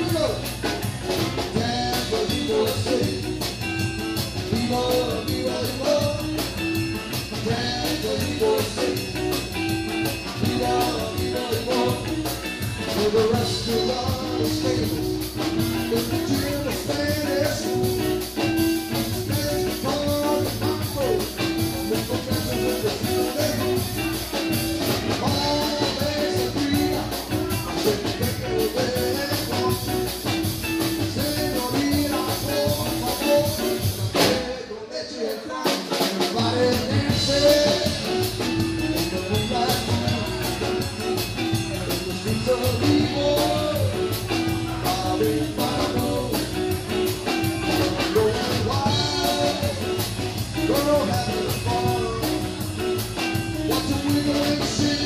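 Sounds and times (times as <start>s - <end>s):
keyboard: 0.0s - 34.9s, 35.6s - 55.0s
drum kit: 0.0s - 55.0s
electric guitar: 0.0s - 55.0s
man singing: 0.0s - 55.0s.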